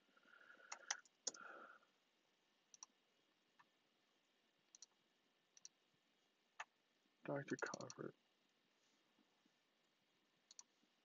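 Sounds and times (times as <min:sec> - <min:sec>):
computer mouse clicks: 0:00.6 - 0:01.5, 0:02.7 - 0:03.0, 0:04.7 - 0:05.8, 0:07.5 - 0:08.0, 0:10.5 - 0:10.7.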